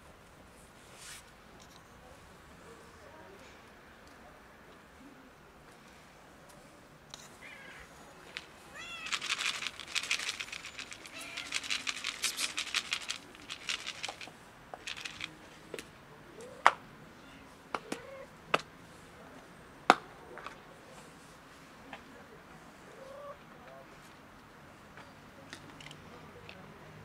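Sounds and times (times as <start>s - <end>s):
cats meowing: 7.4s - 8.0s, 8.7s - 9.2s, 11.0s - 11.6s
plastic container crackling rattle: 8.3s - 15.4s.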